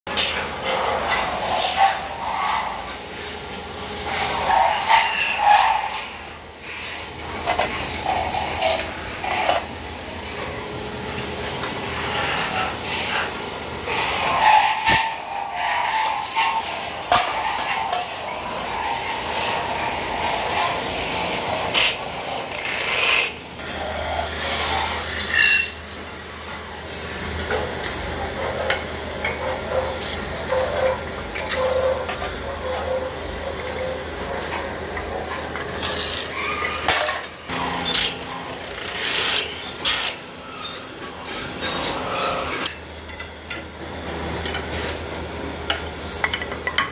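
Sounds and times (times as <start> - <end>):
metal lathe running: 0.1 - 45.0
hand tool rasping on spinning metal: 4.0 - 6.2, 13.9 - 25.8.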